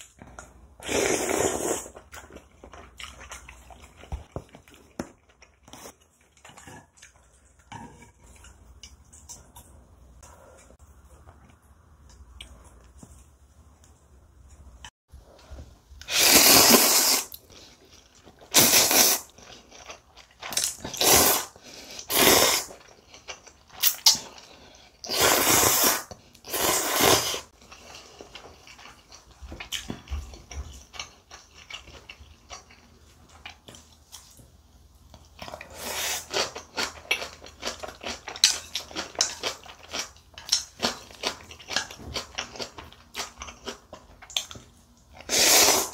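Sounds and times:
woman slurping noodles: 0.8 - 2.0, 16.1 - 17.3, 25.1 - 27.5, 45.3 - 45.9.

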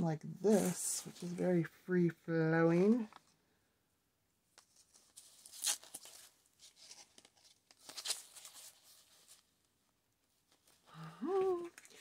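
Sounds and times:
ribbon and tulle rustling: 0.5 - 1.6.

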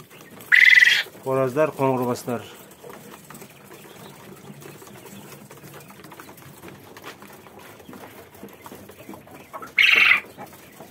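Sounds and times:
soft low quail calls: 0.0 - 1.2, 9.0 - 10.9.

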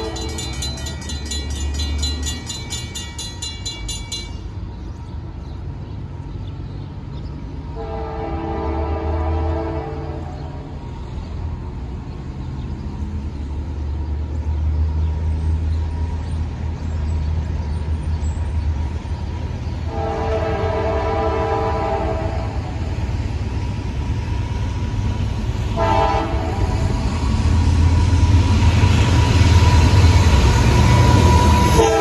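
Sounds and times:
train engine rumble: 0.0 - 32.0
locomotive air horn: 7.7 - 10.4, 19.9 - 22.6, 25.8 - 26.9, 31.2 - 32.0.

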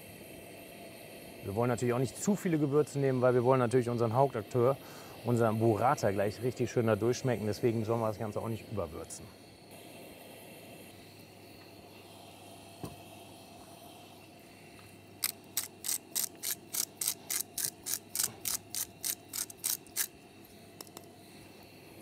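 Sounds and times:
spice mill grinding: 15.1 - 21.3.

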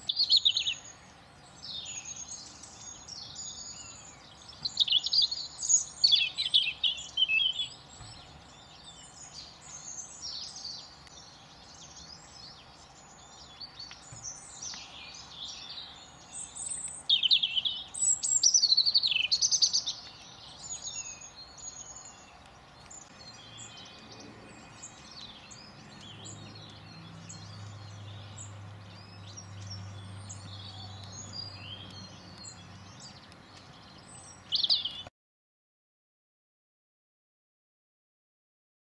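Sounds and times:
songbirds singing and chirping: 0.0 - 35.1.

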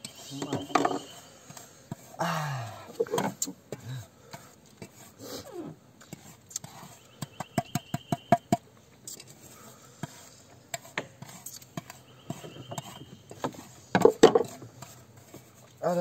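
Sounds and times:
spoon scraping a bowl: 0.1 - 2.1, 9.1 - 15.7.

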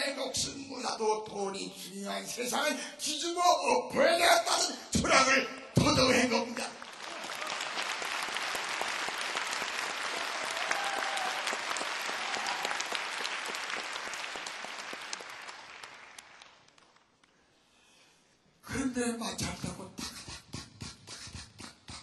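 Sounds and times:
audience applauding: 6.6 - 17.3.

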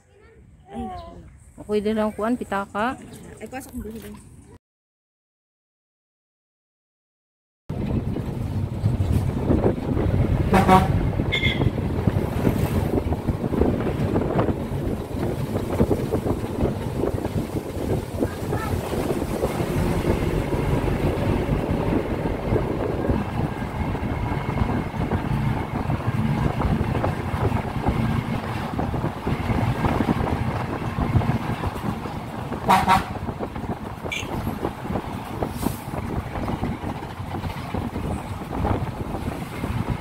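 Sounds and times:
vehicle engine and road rumble: 7.7 - 40.0
vehicle horn toot: 10.5 - 11.7, 32.7 - 33.2, 34.1 - 34.4.

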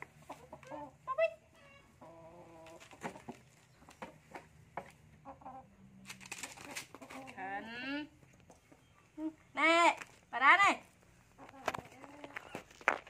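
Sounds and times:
rustling: 6.0 - 7.5.

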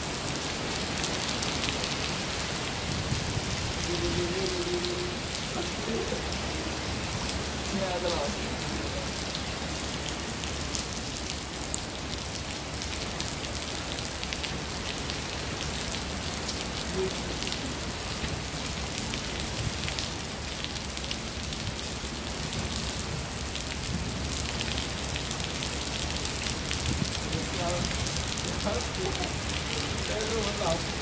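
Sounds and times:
rain on paving stones: 0.0 - 31.0.

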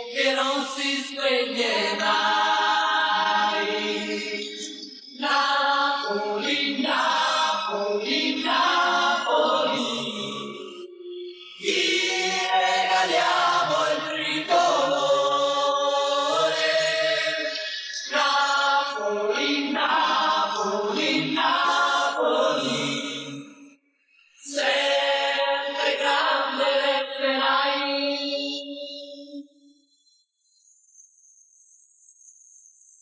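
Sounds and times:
group of voices chanting: 0.0 - 11.0, 11.6 - 23.4, 24.4 - 27.9.

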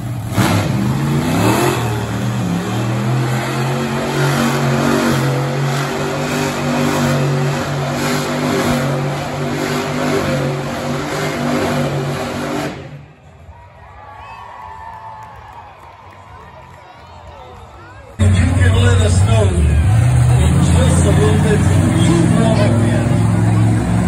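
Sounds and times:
monster truck engine revving: 0.0 - 13.4, 18.2 - 24.0.

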